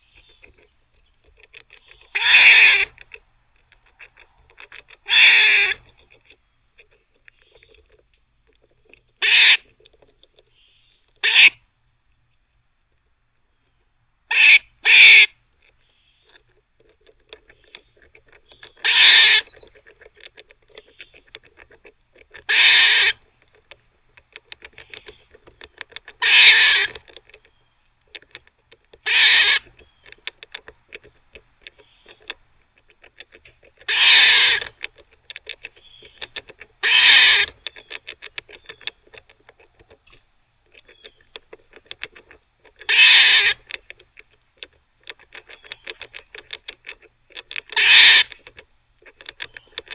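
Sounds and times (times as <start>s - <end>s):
teeth gnawing clicks: 0.0s - 11.5s, 13.6s - 49.9s
squirrel barking: 1.4s - 3.0s, 5.0s - 5.9s, 9.2s - 9.7s, 10.5s - 11.6s, 14.3s - 16.4s, 17.5s - 19.7s, 22.4s - 23.5s, 26.2s - 27.7s, 29.0s - 30.2s, 33.8s - 34.8s, 35.7s - 39.2s, 42.8s - 43.6s, 47.6s - 48.4s.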